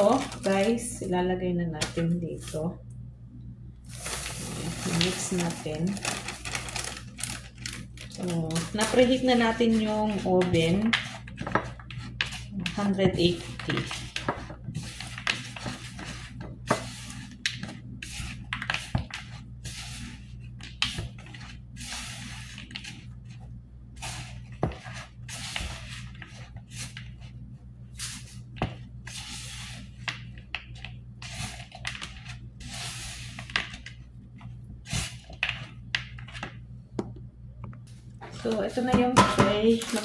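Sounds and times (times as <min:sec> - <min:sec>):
steady low hum: 0:00.0 - 0:40.0
spatula scraping dough in bowl: 0:08.6 - 0:23.1.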